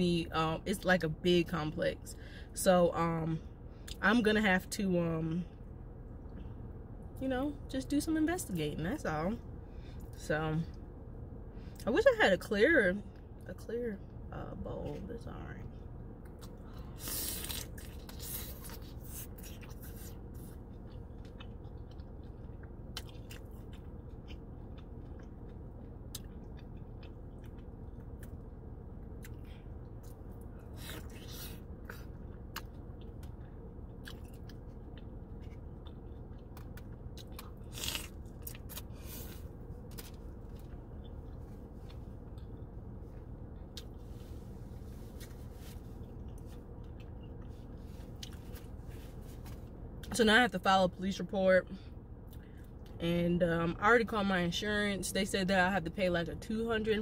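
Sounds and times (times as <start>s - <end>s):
steady low hum: 0.0s - 57.0s
person chewing crunchy food: 16.2s - 42.7s.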